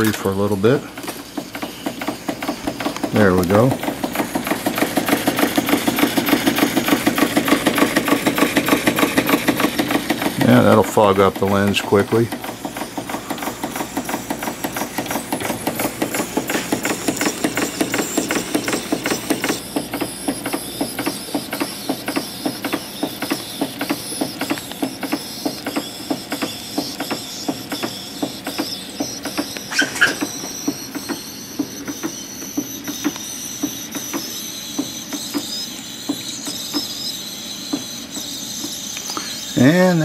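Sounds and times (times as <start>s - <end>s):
mechanical clatter: 0.0s - 40.0s
steam engine chuffing: 0.0s - 40.0s
brief high squeak: 29.7s - 31.4s.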